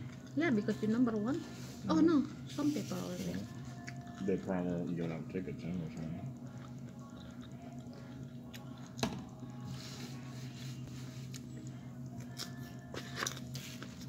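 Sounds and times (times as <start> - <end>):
steady low hum: 0.0 - 14.0
person chewing crunchy food: 3.7 - 5.3, 6.0 - 9.0, 11.2 - 14.0.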